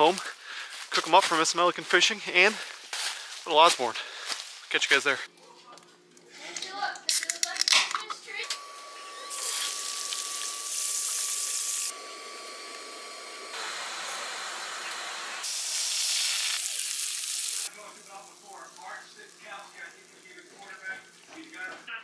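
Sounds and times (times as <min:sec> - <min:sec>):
fish sizzling in a frying pan: 0:15.4 - 0:21.7.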